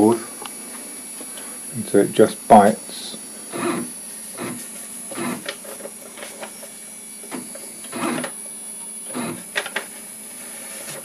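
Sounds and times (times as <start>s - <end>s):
stepper motor short bursts: 3.2s - 8.4s, 9.0s - 9.6s.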